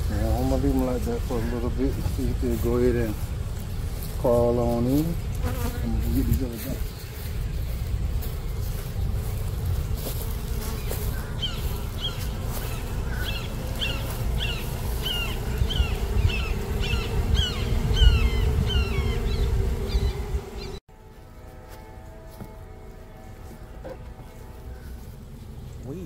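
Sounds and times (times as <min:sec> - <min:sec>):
honeybees buzzing: 0:00.0 - 0:26.0
bird chirping: 0:10.6 - 0:20.8.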